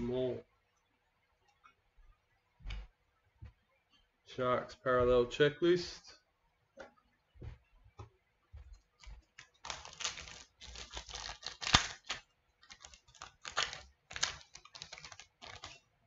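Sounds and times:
card pack rustling and crinkling: 9.4 - 15.9.

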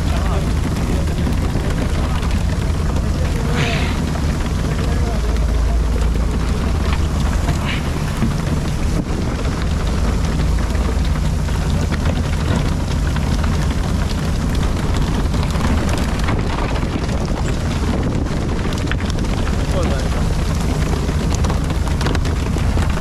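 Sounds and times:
water spray rushing: 0.0 - 12.0
boat engine running: 0.0 - 23.0
wind: 0.0 - 23.0.

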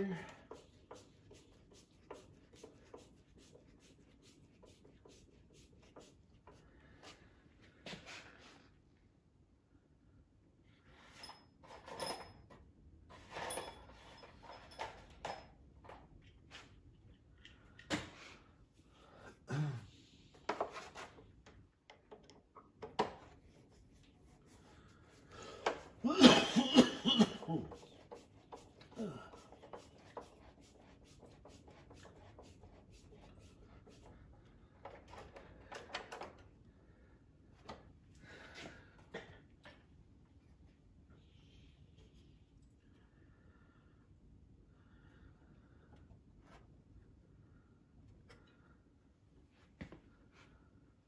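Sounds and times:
man coughing: 19.4 - 20.0, 26.0 - 27.8.

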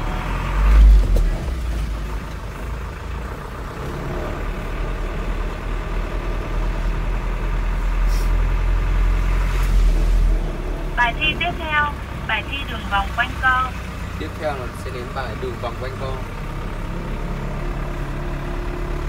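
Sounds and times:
truck engine rumbling: 0.0 - 19.0
tyres on wet road: 0.0 - 19.0
brief hiss: 8.0 - 8.4.

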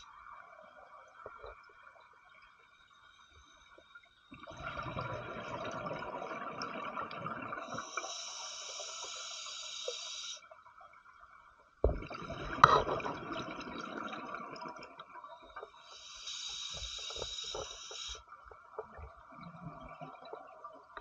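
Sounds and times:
underwater bubbles gurgling: 3.7 - 21.0
regulator breath hiss: 7.7 - 10.4, 15.8 - 18.2.

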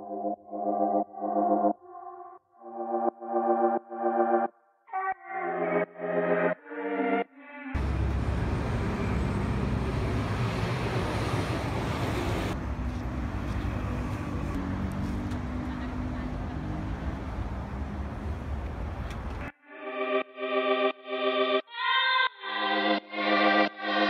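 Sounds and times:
deep traffic rumble: 7.8 - 19.5
passing vehicles: 7.8 - 19.5.

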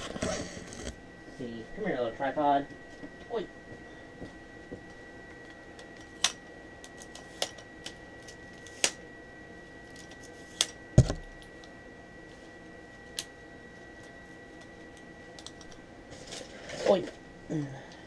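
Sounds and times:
heavy knock with dull thud: 11.0 - 11.2.

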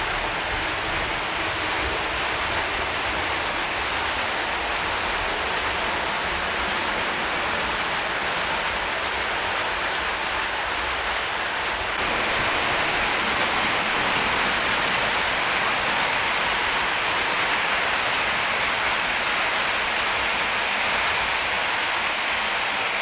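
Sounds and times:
model train rolling on track: 0.0 - 23.0.

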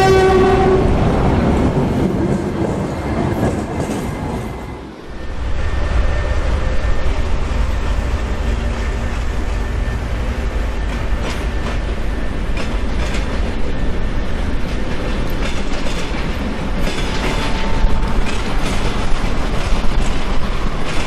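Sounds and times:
diesel locomotive under load: 0.0 - 21.0
wagon wheels clattering on rail joints: 10.8 - 21.0.

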